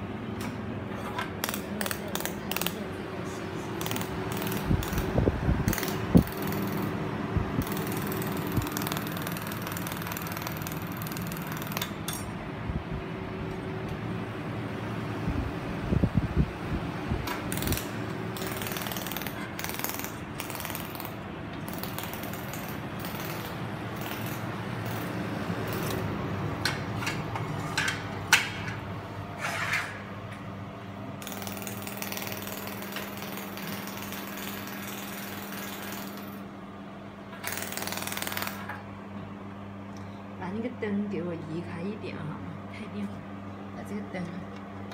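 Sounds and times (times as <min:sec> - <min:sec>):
laser welding machine humming: 0:00.0 - 0:12.2, 0:17.3 - 0:27.2, 0:31.1 - 0:39.0.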